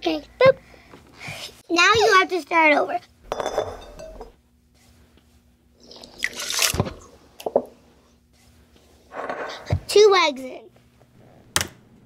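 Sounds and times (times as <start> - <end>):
eggs pouring and splashing: 5.8 - 7.0.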